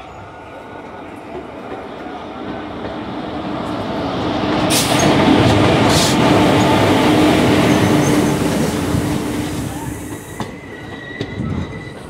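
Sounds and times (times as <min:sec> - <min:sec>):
train rumbling past: 0:00.0 - 0:12.0.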